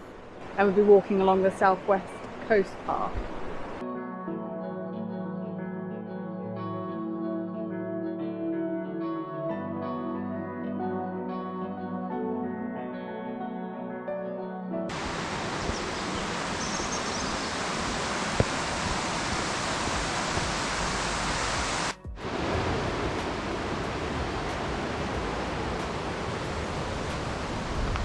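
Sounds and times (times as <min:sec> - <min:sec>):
river water rushing over rocks: 0:14.9 - 0:28.0.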